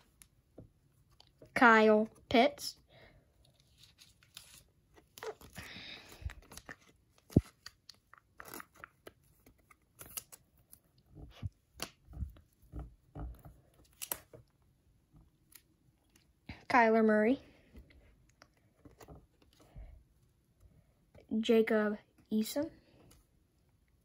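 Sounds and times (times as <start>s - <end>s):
plastic sleeve rustling: 3.5s - 14.5s.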